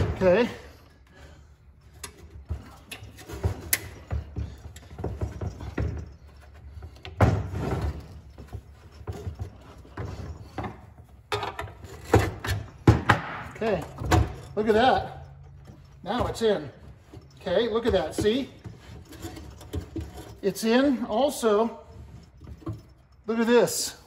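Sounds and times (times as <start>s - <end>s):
metal box clunking and rattling: 1.8s - 20.6s.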